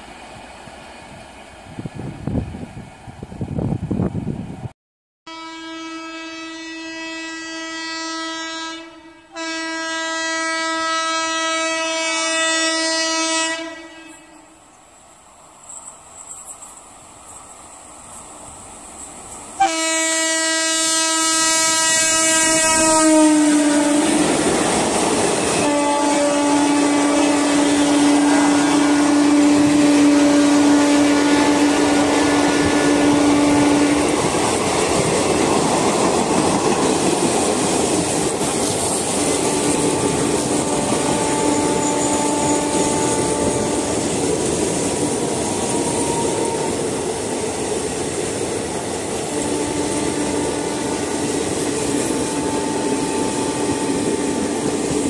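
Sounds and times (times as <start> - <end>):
train horn: 5.3 - 14.6, 19.6 - 34.8, 38.8 - 47.3, 49.0 - 54.8
train wheels clattering on rail: 15.6 - 19.8, 24.0 - 25.8, 31.5 - 55.0.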